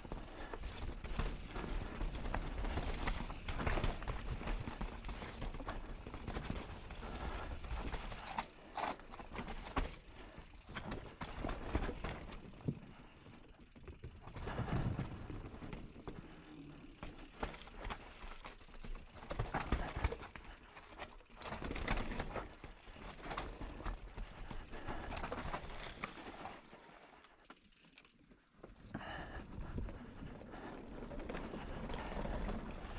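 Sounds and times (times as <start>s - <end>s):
bike tyres rolling over dirt: 0.0s - 32.9s
bike rattling and knocking: 0.1s - 26.0s.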